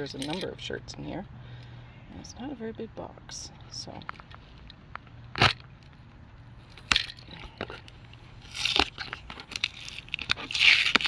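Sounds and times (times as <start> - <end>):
cardboard tearing: 8.4 - 11.0
key slitting packing tape: 8.4 - 11.0.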